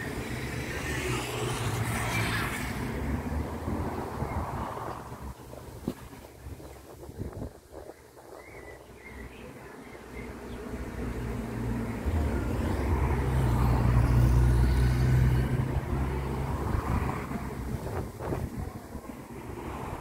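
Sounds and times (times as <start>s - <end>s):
vehicle engine passing by: 0.0s - 5.6s, 10.4s - 20.0s.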